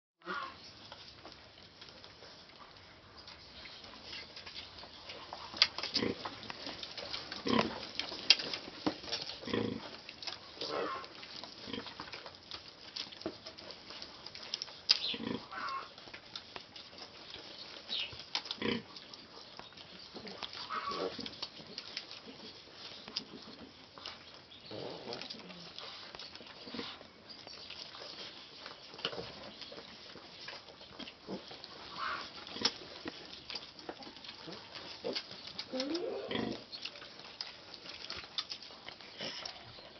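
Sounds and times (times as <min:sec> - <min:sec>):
piglets grunting: 0:00.2 - 0:00.6, 0:10.6 - 0:11.9, 0:15.1 - 0:16.0, 0:20.2 - 0:21.2, 0:31.2 - 0:32.8, 0:34.0 - 0:36.7
piglets suckling clicks and smacks: 0:00.2 - 0:39.9
pigs grunting softly: 0:00.2 - 0:39.9.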